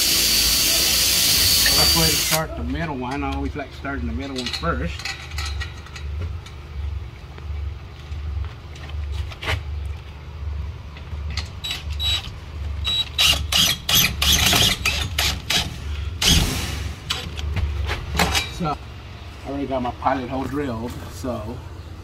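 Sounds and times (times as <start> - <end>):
cordless drill driving screw: 0.0 - 2.4, 12.8 - 15.6
steady low hum: 1.3 - 22.0.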